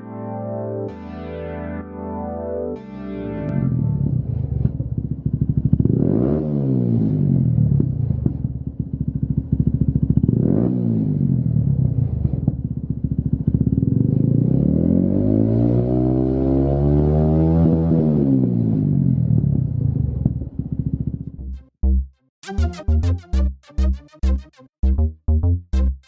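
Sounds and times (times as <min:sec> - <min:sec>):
motorcycle engine idling and revving: 0:03.6 - 0:21.8.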